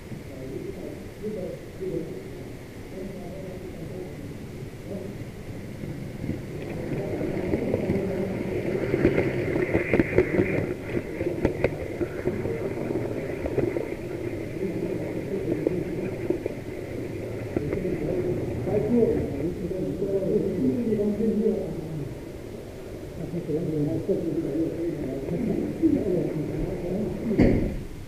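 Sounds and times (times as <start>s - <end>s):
wheels rattling on track: 3.3s - 28.0s
wheels clicking over rail joints: 5.4s - 21.6s.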